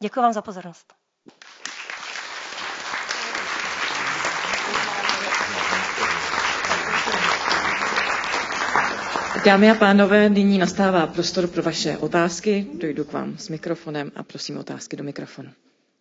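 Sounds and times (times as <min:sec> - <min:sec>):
audience applauding: 0:01.3 - 0:11.1.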